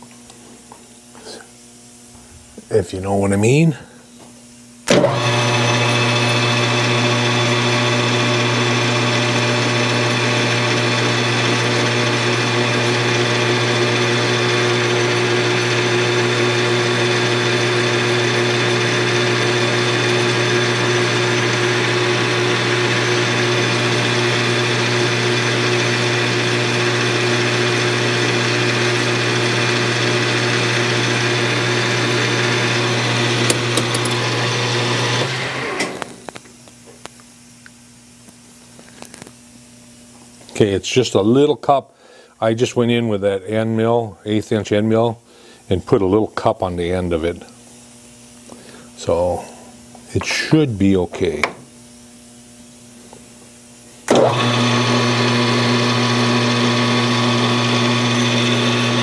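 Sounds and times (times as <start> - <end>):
metal lathe humming: 4.9 - 36.2, 54.1 - 59.0.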